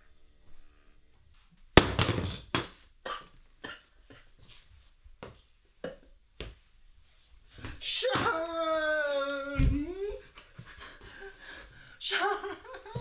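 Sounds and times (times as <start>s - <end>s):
jar hitting wooden floor: 1.8s - 2.7s.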